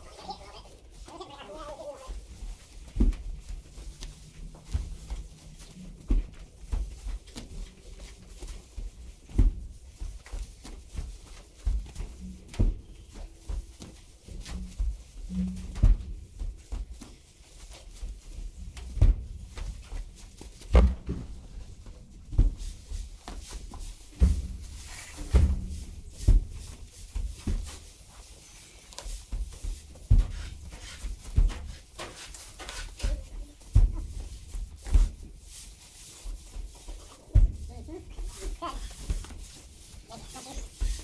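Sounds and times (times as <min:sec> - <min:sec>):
dull thumps and knocks: 0:02.1 - 0:17.1, 0:18.4 - 0:28.2, 0:36.4 - 0:41.0.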